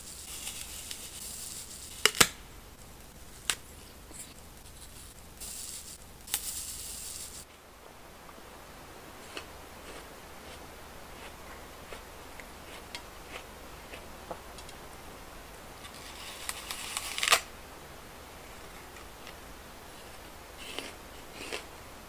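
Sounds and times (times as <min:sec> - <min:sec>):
paper crinkling: 0:15.8 - 0:17.5.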